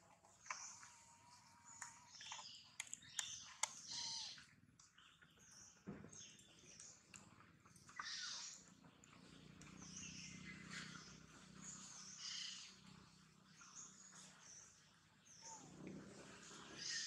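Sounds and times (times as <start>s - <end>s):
animals chirping and squeaking: 0.1s - 17.0s
sharp clicks: 1.8s - 3.8s.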